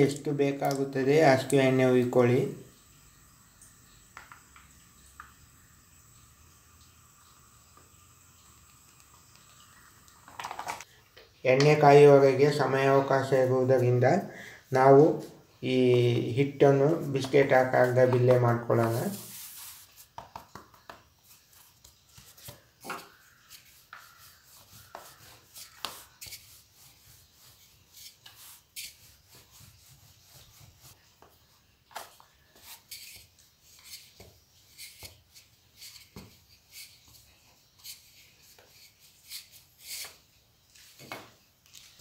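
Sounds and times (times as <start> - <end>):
rolling pin rubbing dough: 14.8 - 31.5, 32.1 - 40.4.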